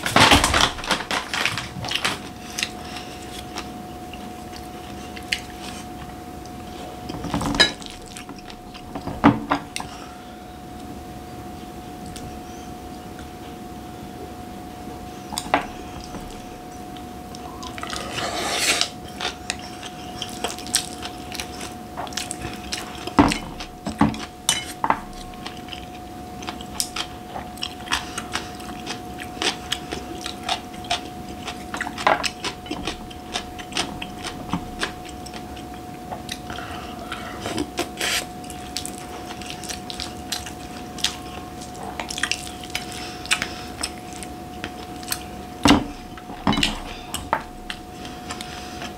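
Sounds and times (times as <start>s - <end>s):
faint hum: 0.0s - 48.9s
chewing and mouth sounds: 15.4s - 48.9s.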